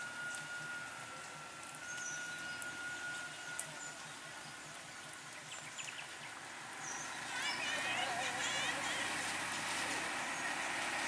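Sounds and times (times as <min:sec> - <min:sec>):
thin steady whistle: 0:00.0 - 0:04.7
auto-rickshaw engine idling: 0:00.0 - 0:11.0
birds chirping: 0:01.3 - 0:09.2.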